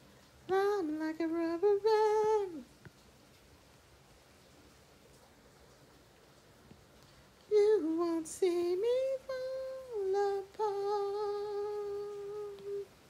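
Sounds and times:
woman humming: 9.4 - 12.9.

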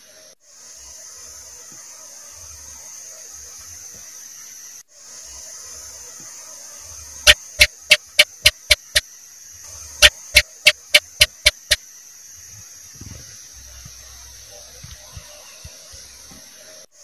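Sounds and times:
steady high hiss: 0.0 - 17.0
gecko chirping: 7.3 - 9.0, 10.0 - 11.8.

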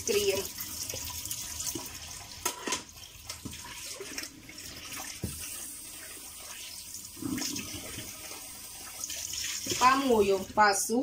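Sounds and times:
tap running into a sink: 5.0 - 5.6.

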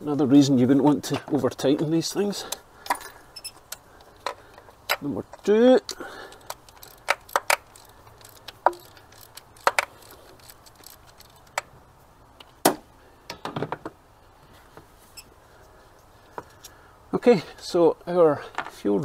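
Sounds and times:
ratchet wrench clicking: 6.4 - 11.7.

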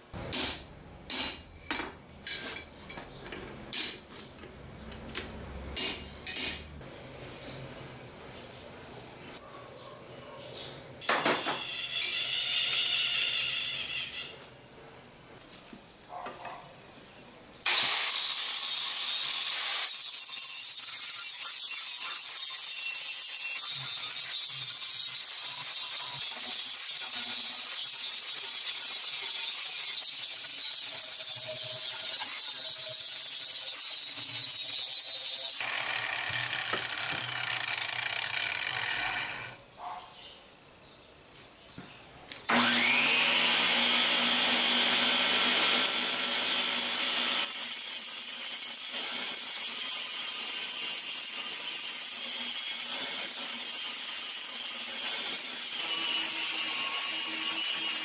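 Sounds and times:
angle grinder cutting steel: 11.0 - 14.3, 17.6 - 39.6, 42.5 - 58.0.

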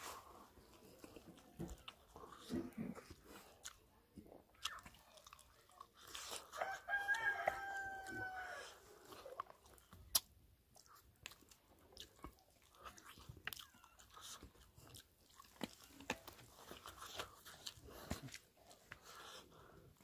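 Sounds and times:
wet chewing and crunching: 0.0 - 20.0
rooster crowing: 6.6 - 8.8.

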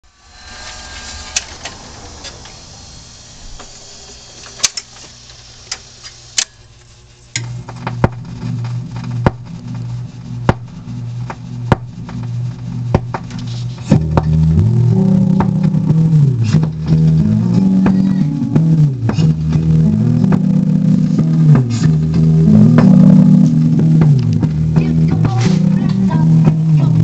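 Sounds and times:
low hum: 0.0 - 27.0
regular ticking of spinning record: 3.4 - 27.0
jukebox music: 7.4 - 27.0.

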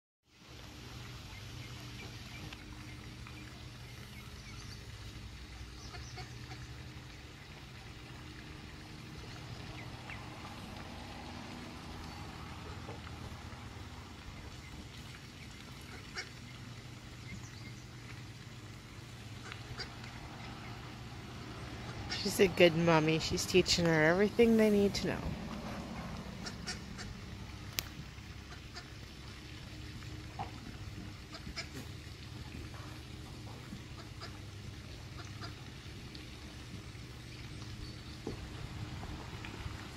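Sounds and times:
low mechanical hum: 0.3 - 39.9
steady low rumble: 0.6 - 31.3
ducks calling: 5.8 - 6.8, 14.2 - 18.3, 19.1 - 22.6, 25.6 - 27.2, 35.1 - 35.6.

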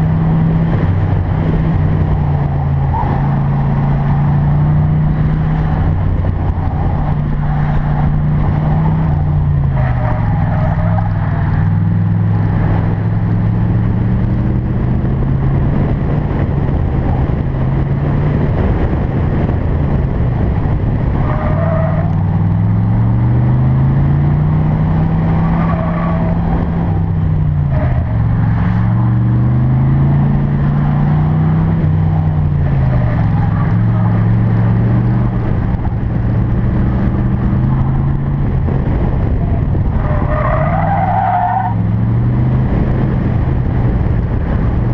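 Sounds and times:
car engine accelerating: 0.0 - 44.9.

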